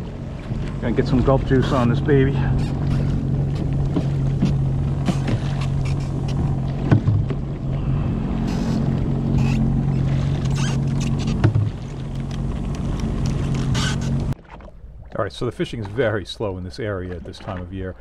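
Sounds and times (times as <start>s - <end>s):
water churning around hull: 0.0s - 18.0s
watercraft engine humming: 0.0s - 18.0s
short knocks: 2.7s - 7.4s.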